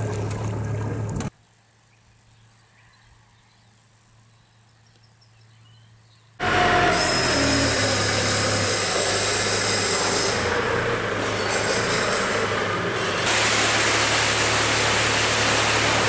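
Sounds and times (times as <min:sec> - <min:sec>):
forklift working: 0:06.4 - 0:16.0.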